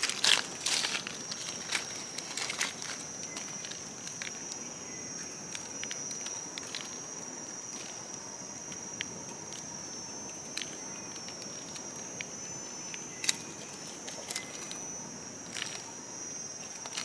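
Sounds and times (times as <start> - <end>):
rustling leaf litter: 0.0 - 8.3, 16.6 - 17.0
insect drone: 0.0 - 17.0.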